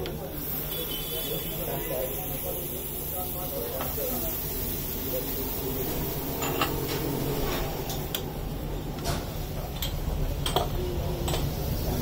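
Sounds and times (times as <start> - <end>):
tea frothing and boiling over: 0.0 - 12.0.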